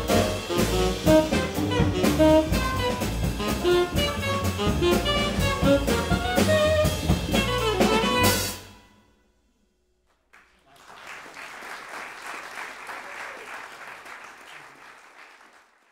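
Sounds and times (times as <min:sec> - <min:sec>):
double bass: 0:00.0 - 0:08.6
drum kit: 0:00.0 - 0:08.8
piano: 0:00.0 - 0:09.0
saxophone: 0:00.0 - 0:09.2.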